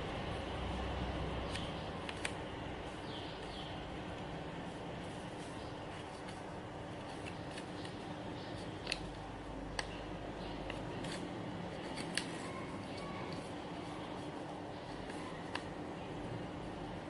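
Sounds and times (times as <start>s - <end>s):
paper being folded and creased: 5.0s - 9.1s, 10.7s - 15.8s.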